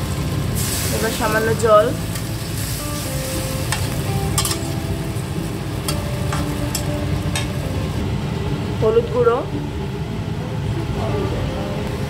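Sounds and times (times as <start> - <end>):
oil sizzling: 0.0 - 10.1
low rumble: 0.0 - 12.0.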